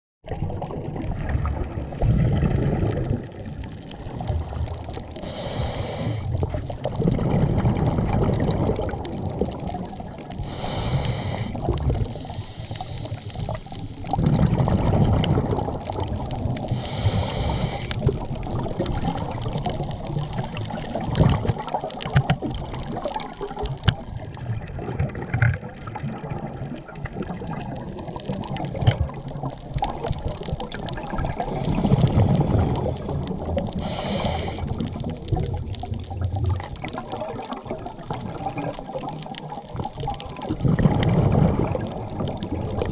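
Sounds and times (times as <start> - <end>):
gurgling exhaled bubbles: 0.2 - 42.9
regulator hissing inhale: 5.2 - 6.3, 10.4 - 14.1, 16.7 - 18.0, 31.4 - 34.7.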